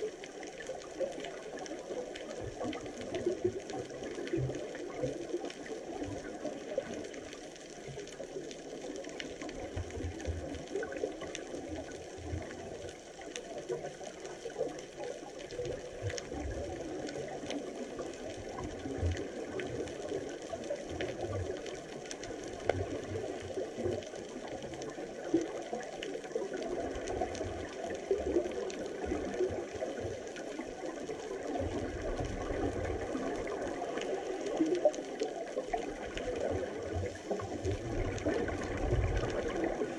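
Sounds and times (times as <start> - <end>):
underwater crackling hiss: 0.0 - 39.9
bubbling rumbles of exhaled air: 14.6 - 39.9.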